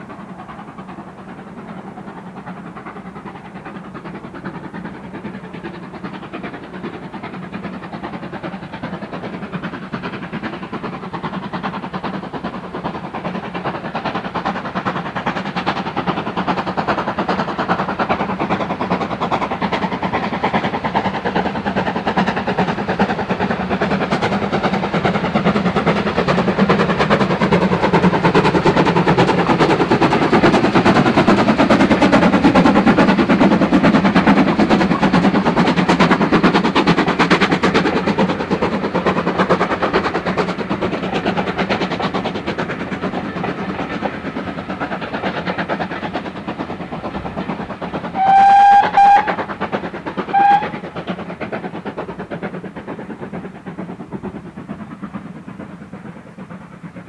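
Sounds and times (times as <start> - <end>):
steam train exhaust and rattle: 0.0 - 57.0
steam whistle toots: 48.1 - 49.5, 50.3 - 50.9.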